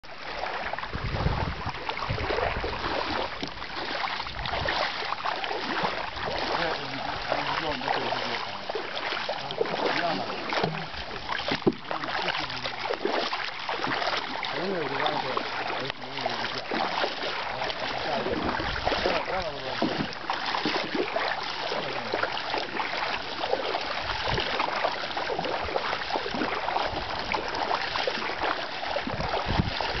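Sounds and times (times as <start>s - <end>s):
water sloshing and splashing: 0.0s - 30.0s
wind on microphone: 0.7s - 5.0s, 5.6s - 8.7s, 17.9s - 20.1s, 24.0s - 30.0s
dull low thumps: 0.8s - 4.8s, 29.0s - 30.0s.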